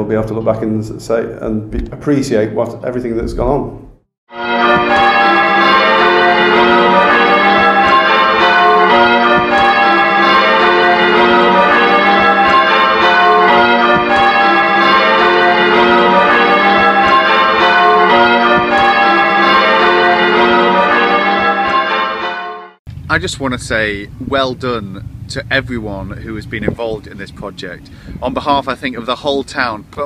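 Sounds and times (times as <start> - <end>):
church bells ringing: 4.3 - 22.8.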